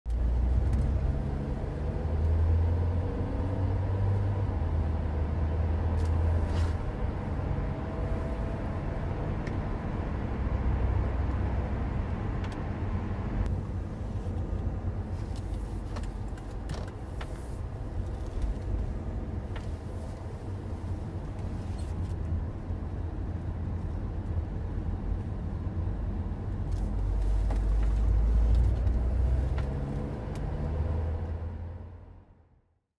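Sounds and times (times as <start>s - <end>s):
car engine and tyres rumbling: 0.1s - 32.9s.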